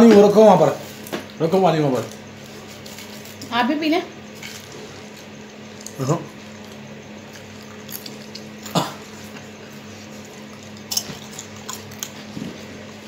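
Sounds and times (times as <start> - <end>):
steady low hum: 0.0 - 13.0
chips crunching: 4.3 - 12.9.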